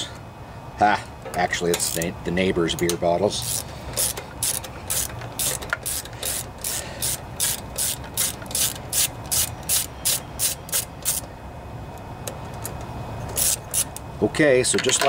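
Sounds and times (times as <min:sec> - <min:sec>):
ratchet wrench clicking: 0:01.7 - 0:02.1, 0:02.7 - 0:11.3, 0:13.3 - 0:14.0.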